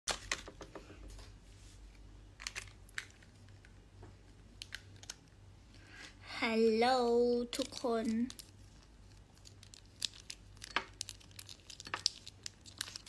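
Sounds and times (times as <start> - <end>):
packaging crinkling: 7.6 - 13.0.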